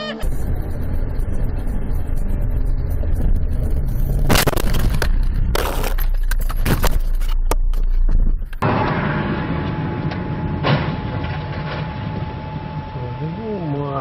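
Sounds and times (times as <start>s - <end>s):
car driving rumble: 0.0s - 14.0s
car crash impact: 8.6s - 12.9s.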